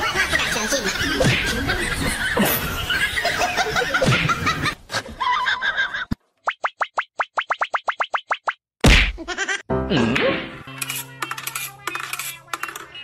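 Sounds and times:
human laughter: 0.0 - 6.2.

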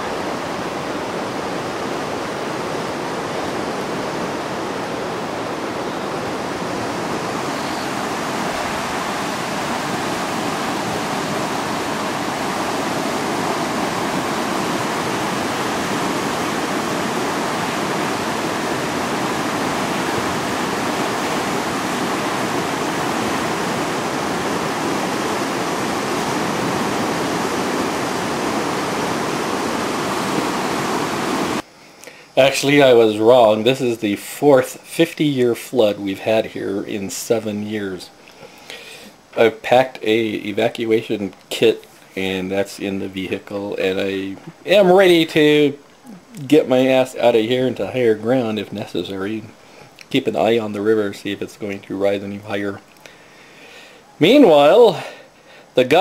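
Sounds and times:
floodwater rushing: 0.0 - 31.6, 38.7 - 51.8.

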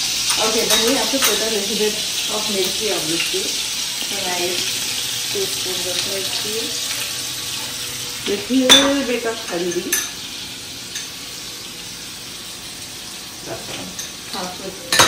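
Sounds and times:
hot oil sizzling: 0.0 - 15.0
spoon clinking against metal pan: 8.6 - 10.2, 14.0 - 15.0.

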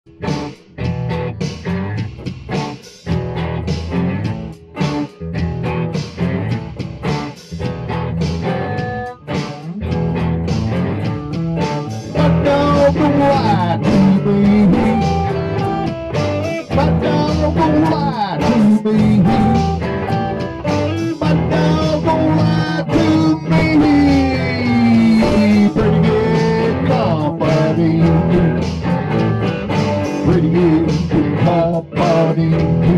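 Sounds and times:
blues-rock guitar music: 0.1 - 32.9.

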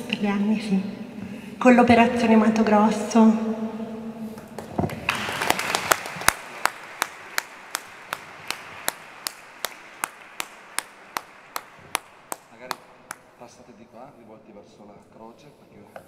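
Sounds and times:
steady hand clapping: 4.4 - 13.4
audience applause: 4.5 - 13.2.

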